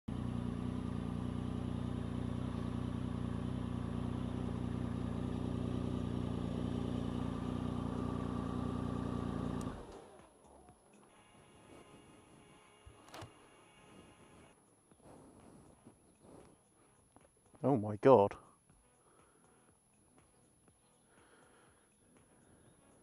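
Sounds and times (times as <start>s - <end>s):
motorcycle engine idling: 0.1s - 14.6s.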